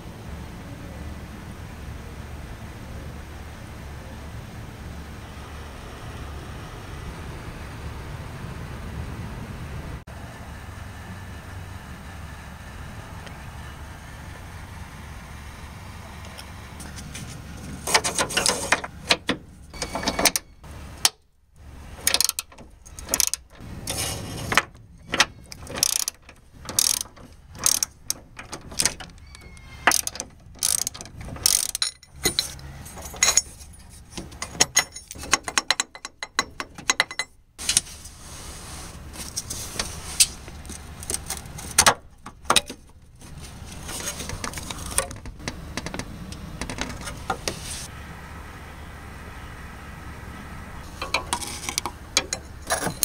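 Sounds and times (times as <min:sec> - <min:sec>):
hand ratchet clicking: 0:22.0 - 0:23.5, 0:25.1 - 0:32.4.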